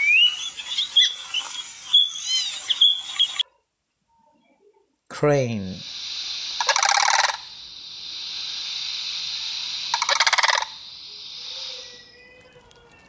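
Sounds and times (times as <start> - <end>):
high-pitched hiss: 5.1 - 13.0
crane rattling calls: 6.6 - 7.6, 9.9 - 12.2.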